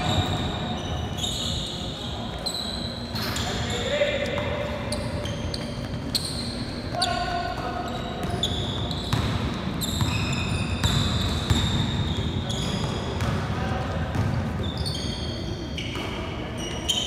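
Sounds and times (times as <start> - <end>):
sneakers squeaking: 0.0 - 17.0
voices in echoing hall: 0.0 - 17.0
basketball bouncing on court: 6.9 - 14.8.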